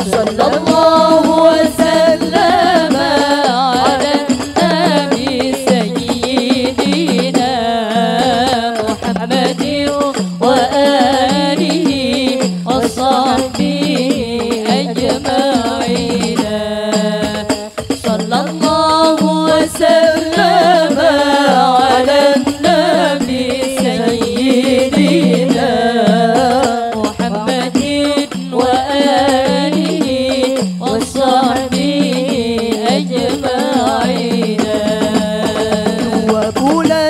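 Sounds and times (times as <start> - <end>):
percussion beat: 0.0 - 37.0
woman singing through loudspeaker: 0.0 - 37.0.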